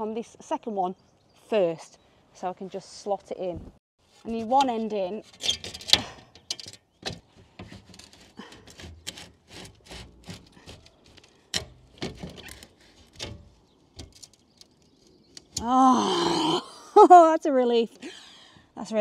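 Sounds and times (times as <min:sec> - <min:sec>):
glass scraping in frame: 0:04.3 - 0:15.6.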